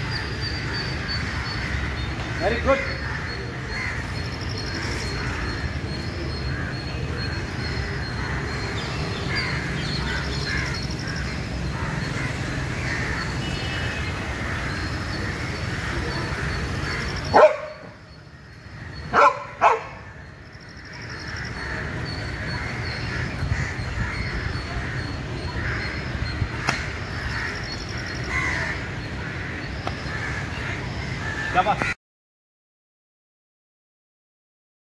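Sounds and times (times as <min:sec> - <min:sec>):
dog barking: 0:17.3 - 0:17.9, 0:19.1 - 0:20.0.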